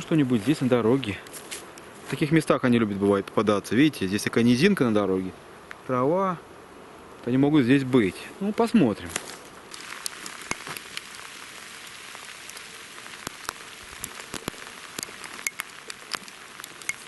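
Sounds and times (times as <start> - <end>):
footsteps through dry grass: 0.0 - 2.4, 9.0 - 11.5
twigs snapping underfoot: 9.1 - 11.4, 12.4 - 17.0.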